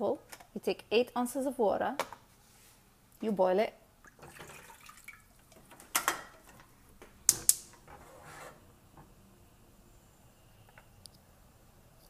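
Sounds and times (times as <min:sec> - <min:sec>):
water pouring into saucepan: 0:04.1 - 0:05.5.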